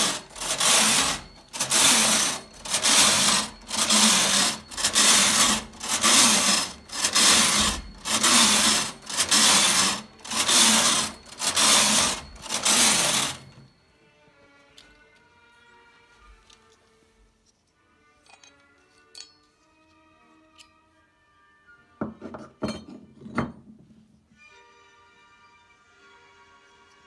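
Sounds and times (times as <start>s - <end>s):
knitting machine carriage passing: 0.0s - 13.8s.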